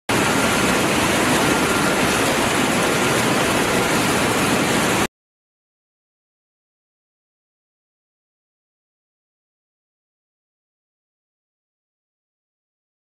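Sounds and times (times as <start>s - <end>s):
faint steady whine: 0.1s - 5.1s
machinery rushing noise: 0.1s - 5.1s.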